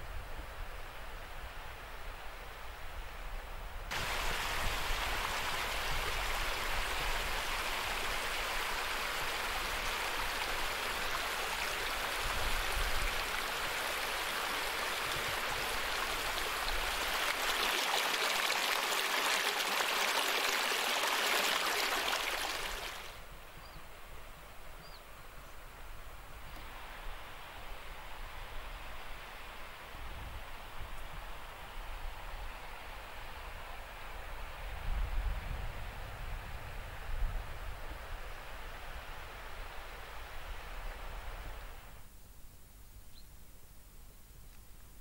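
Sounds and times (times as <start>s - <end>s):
faint steady hiss: 0.0s - 45.0s
stream rushing over rocks: 3.9s - 23.2s.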